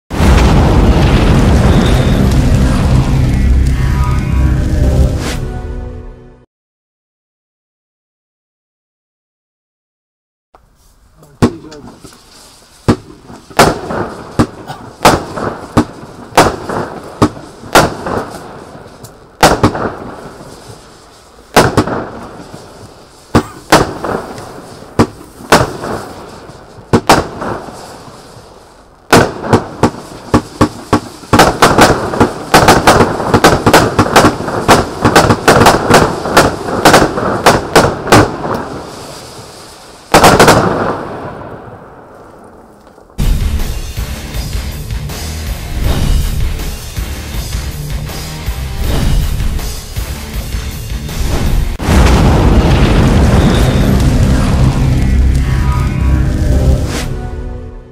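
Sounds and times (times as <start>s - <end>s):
rushing fireworks noise: 0.1s - 5.5s, 10.6s - 57.9s
fireworks shots with hiss: 10.6s - 42.2s, 45.1s - 50.4s, 51.0s - 55.4s.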